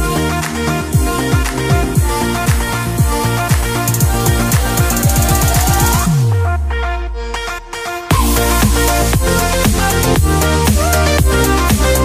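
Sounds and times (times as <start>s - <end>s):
deep bass note sliding: 8.1s - 10.6s.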